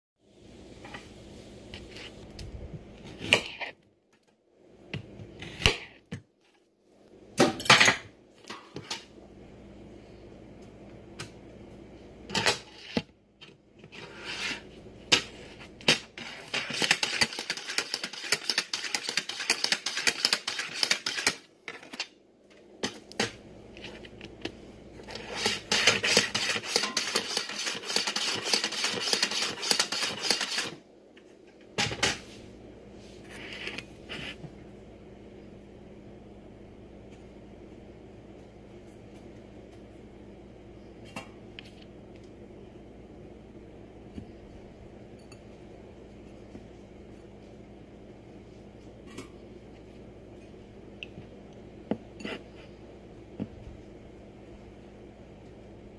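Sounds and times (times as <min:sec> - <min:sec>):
rapid scraping clicks of slicer: 0:16.4 - 0:22.0, 0:25.2 - 0:30.8.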